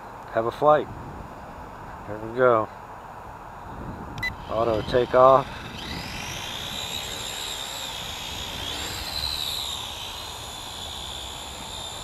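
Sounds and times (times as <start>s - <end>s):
drone motors whining: 3.8s - 12.0s.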